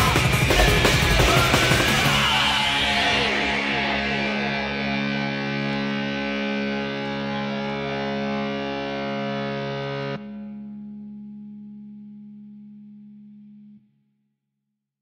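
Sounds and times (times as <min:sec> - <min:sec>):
distorted electronic chord: 0:00.0 - 0:12.0.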